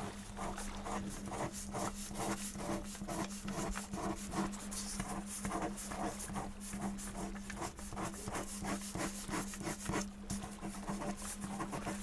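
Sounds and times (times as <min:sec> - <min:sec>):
steady low hum: 0:00.0 - 0:12.0
pen scratching on paper: 0:01.3 - 0:10.0.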